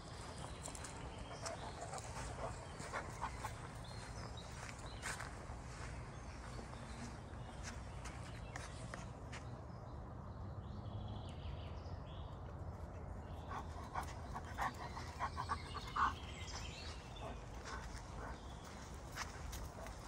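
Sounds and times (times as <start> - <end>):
footsteps crunching on dirt path: 0.0 - 9.6, 13.6 - 20.0
dog panting: 0.3 - 4.8, 13.4 - 20.0.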